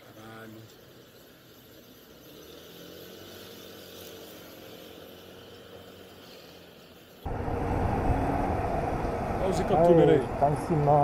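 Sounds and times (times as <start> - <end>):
motorcycle engine: 7.2 - 11.0
rush of wind: 7.2 - 11.0
scooter engine speeding up: 7.3 - 11.0.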